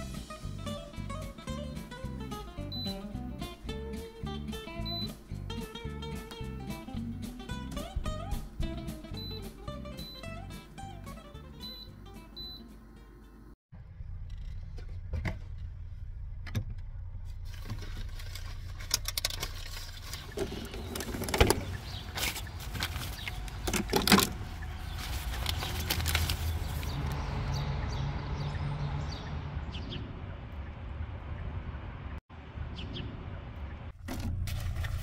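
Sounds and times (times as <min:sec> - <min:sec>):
plastic bottles clattering: 0:19.0 - 0:24.4.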